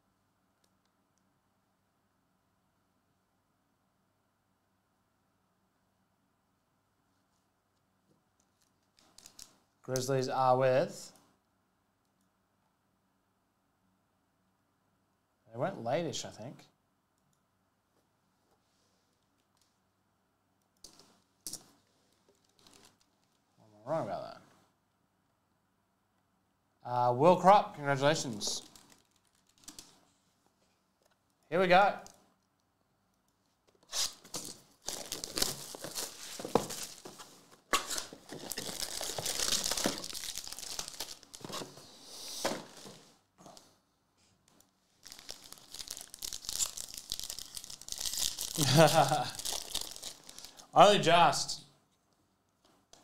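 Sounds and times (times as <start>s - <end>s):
foil card packs crinkling: 28.4s - 29.9s, 33.9s - 41.8s, 45.0s - 50.7s
shrink wrap and cardboard tearing: 28.5s - 29.9s, 33.9s - 41.8s, 45.0s - 50.6s.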